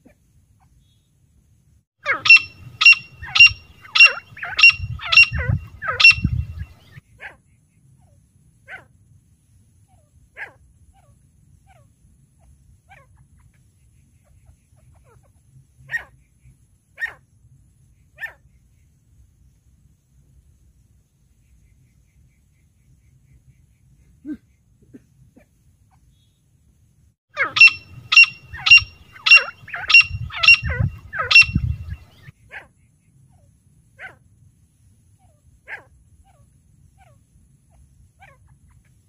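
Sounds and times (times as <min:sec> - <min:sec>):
francolin calling: 0:02.0 - 0:06.9, 0:27.4 - 0:32.3
low rumble: 0:30.0 - 0:32.1.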